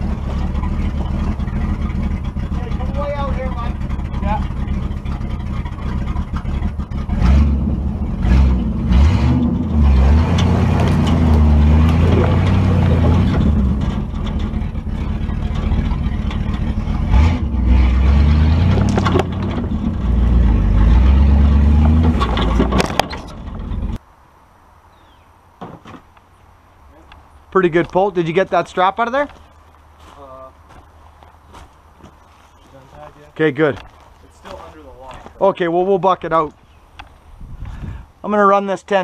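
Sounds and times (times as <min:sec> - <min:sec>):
truck engine revving under load: 0:00.0 - 0:24.0.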